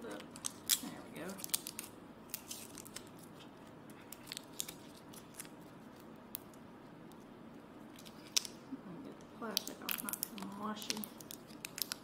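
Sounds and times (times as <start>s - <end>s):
plastic wrapping crinkling: 0.0s - 6.5s, 7.9s - 8.6s, 9.4s - 12.0s.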